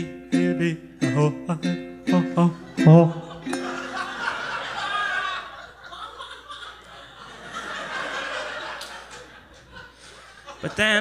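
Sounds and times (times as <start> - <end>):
audience laughing: 2.3 - 11.0.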